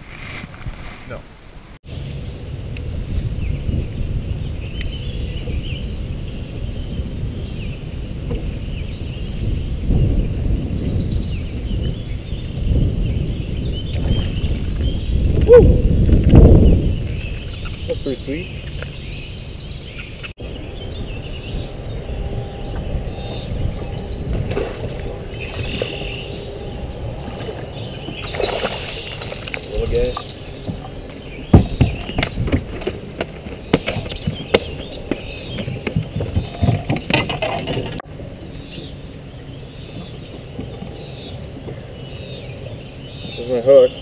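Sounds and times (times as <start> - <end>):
knocks and thumps on a boat: 30.6 - 38.0.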